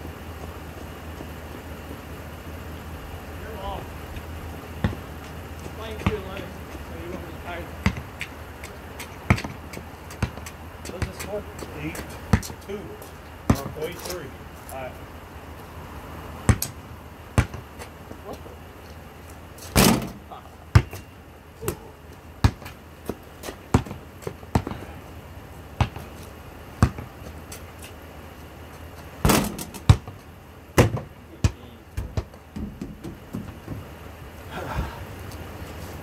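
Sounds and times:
basketball bouncing on hard court: 4.8 - 6.5, 7.8 - 8.4, 9.2 - 11.3, 12.3 - 12.6, 16.5 - 16.8, 17.4 - 17.7, 20.7 - 21.8, 22.4 - 24.9, 25.8 - 26.1, 26.8 - 27.2, 29.2 - 30.2, 30.8 - 33.8
loud bangs: 29.2 - 30.0.

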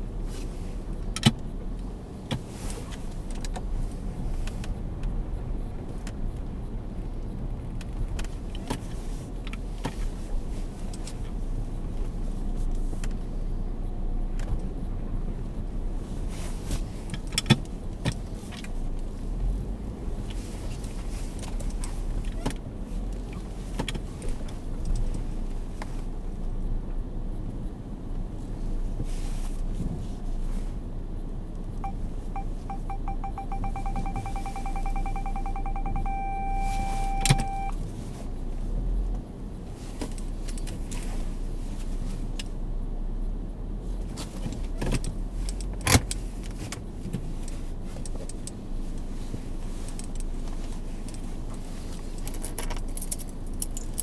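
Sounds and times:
parking sensor beeping: 31.8 - 37.8
parking sensor steady tone: 31.8 - 37.8.

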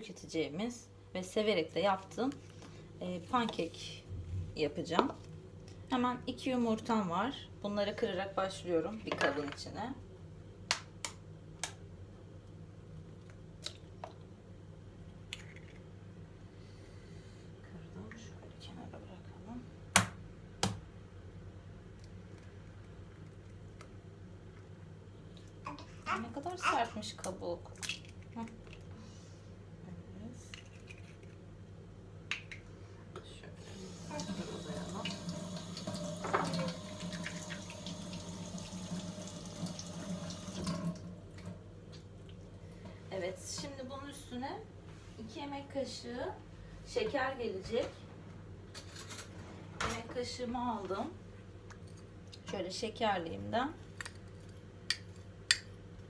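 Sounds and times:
eggshells cracking on bowl rim: 27.7 - 28.9, 30.5 - 31.4
water running into sink: 33.6 - 41.6.

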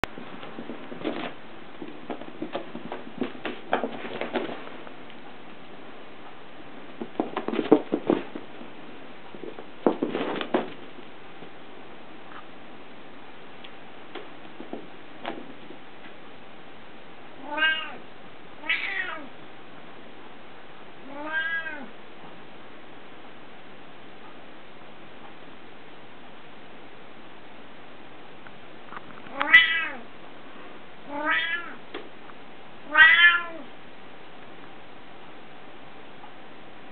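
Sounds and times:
cat meowing: 17.4 - 18.0, 18.6 - 19.3, 21.0 - 21.9, 29.3 - 30.1, 31.1 - 31.8, 32.9 - 33.7.

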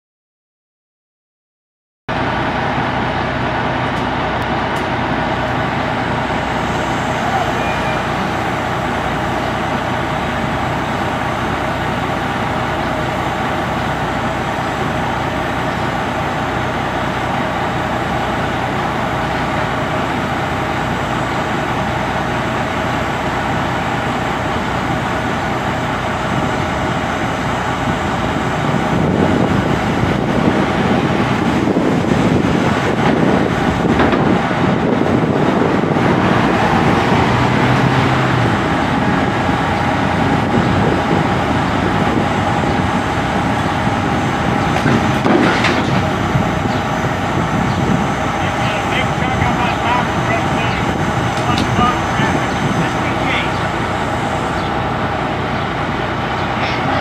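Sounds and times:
heavy diesel engine running: 2.1 - 57.0
car passing with road noise: 34.7 - 41.8.

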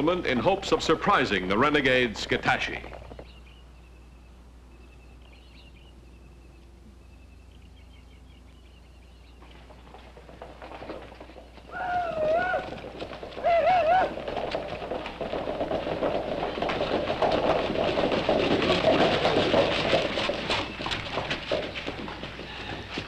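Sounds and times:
galloping horses hooves: 0.0 - 4.2, 4.8 - 23.0
riders war whooping: 11.7 - 14.5.

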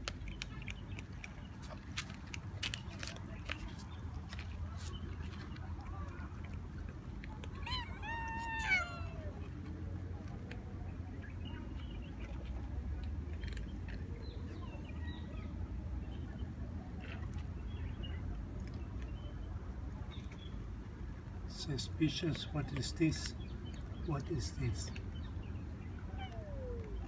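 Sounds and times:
cat meowing: 7.5 - 9.5, 26.1 - 27.0.

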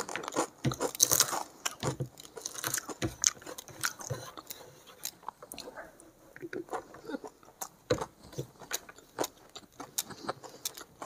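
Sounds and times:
crisp crunches: 0.0 - 5.3
person chewing food: 0.0 - 11.0.

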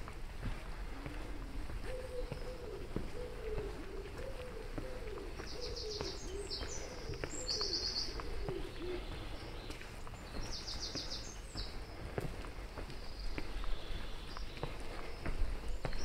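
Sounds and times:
faint footsteps: 0.0 - 16.0
pigeon cooing: 0.9 - 9.5.

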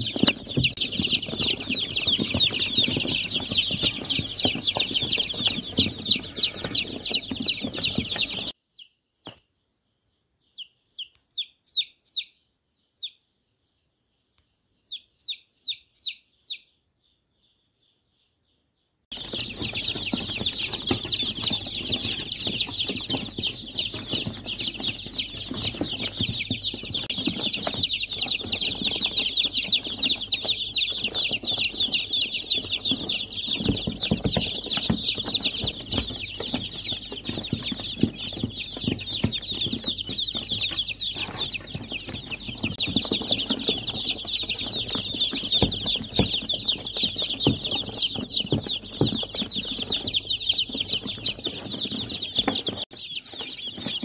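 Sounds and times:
chicks peeping: 0.0 - 54.0.

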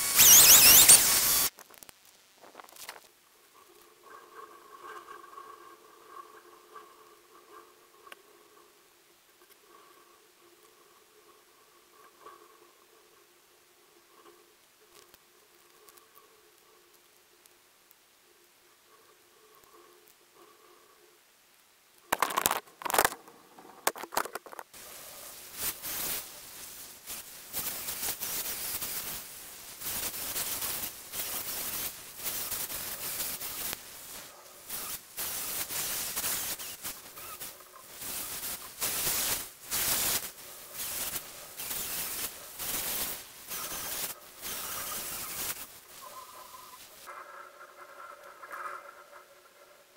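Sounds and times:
sharp knocks and clatter: 22.2 - 24.8.

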